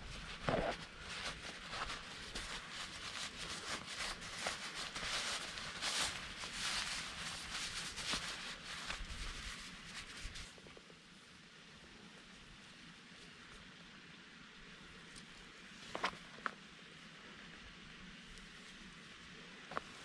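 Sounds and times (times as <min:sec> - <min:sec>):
nylon fabric rustling: 0:00.0 - 0:10.5.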